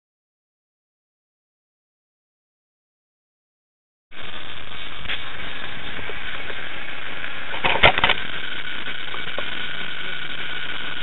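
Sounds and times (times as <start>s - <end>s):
microphone hiss: 4.1s - 11.0s.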